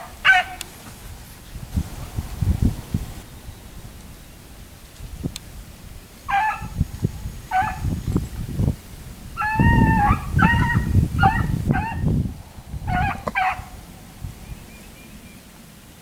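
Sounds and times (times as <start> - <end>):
beagles baying: 0.0 - 1.1, 6.1 - 8.3, 9.3 - 15.7.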